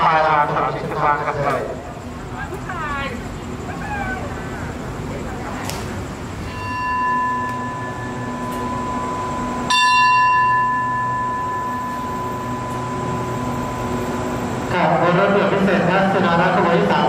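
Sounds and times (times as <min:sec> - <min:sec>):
steady low hum: 0:00.0 - 0:17.0
bell ringing: 0:06.4 - 0:14.7.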